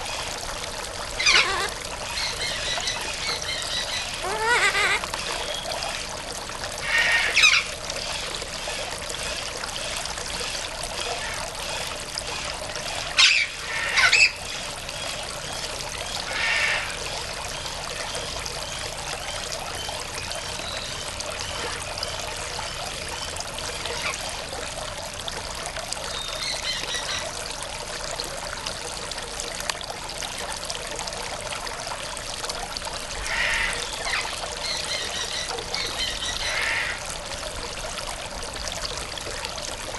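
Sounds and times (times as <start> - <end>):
trickle of running water: 0.0 - 39.9
macaw calls: 1.2 - 5.0, 16.3 - 16.9, 33.3 - 37.0.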